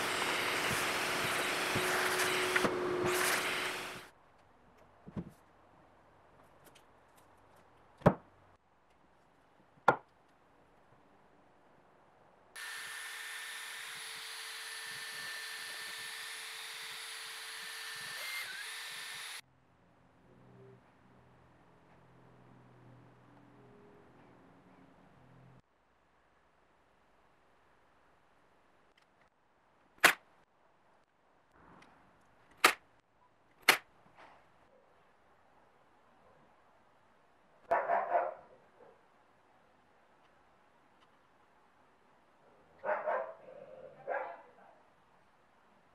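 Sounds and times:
cordless drill mixing resin: 0.0s - 4.1s, 12.6s - 19.4s.

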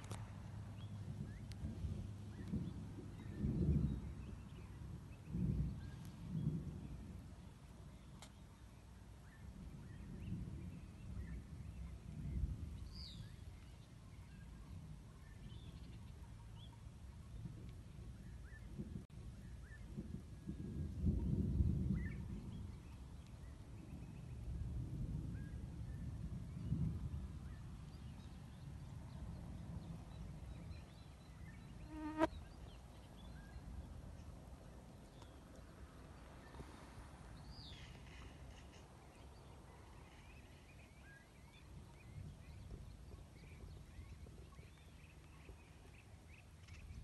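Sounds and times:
wind rumble on microphone: 0.0s - 47.0s
insect buzzing close: 31.9s - 32.3s.

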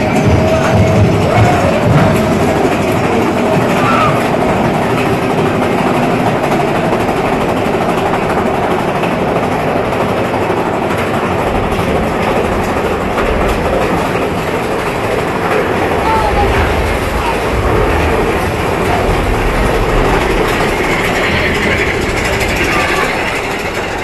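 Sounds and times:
roller coaster wheels rumbling on rail: 0.0s - 24.0s.

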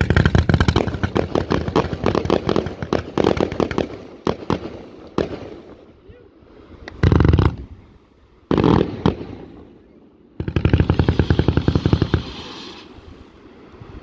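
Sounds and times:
rapid firework crackling: 0.0s - 5.6s, 10.4s - 12.9s.

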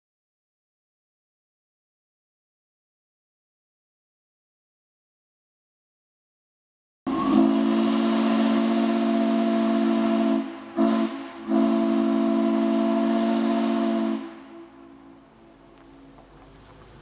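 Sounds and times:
steam whistle blowing: 7.1s - 15.6s.

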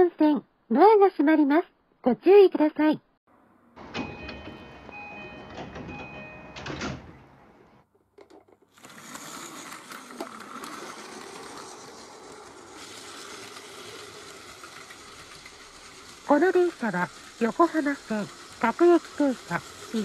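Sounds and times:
electronic door chime: 3.8s - 7.1s
clatter: 8.2s - 20.0s
toy train motor whirring: 8.3s - 20.0s
toy train wheels rattling on track: 8.3s - 20.0s.

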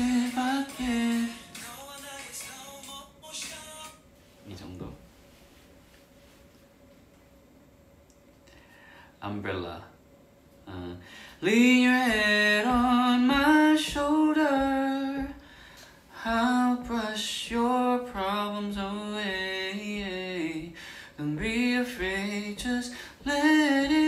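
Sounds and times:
man singing unaccompanied: 0.0s - 4.0s, 10.7s - 15.4s, 16.2s - 24.0s.

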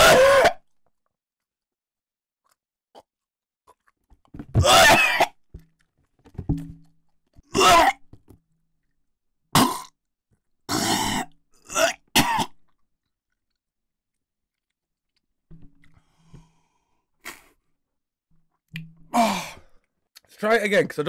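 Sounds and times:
man retching and coughing: 0.0s - 0.7s, 4.5s - 5.4s, 7.5s - 8.1s, 9.5s - 10.0s, 10.7s - 12.8s.

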